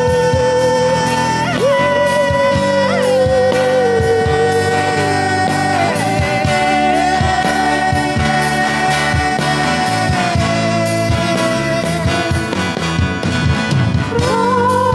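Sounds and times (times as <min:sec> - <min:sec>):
woman singing: 0:00.0 - 0:12.5, 0:14.1 - 0:14.9
acoustic guitar: 0:00.0 - 0:14.9
bass guitar: 0:00.0 - 0:14.9
electric guitar: 0:00.0 - 0:14.9
steady drum beat: 0:00.0 - 0:14.9.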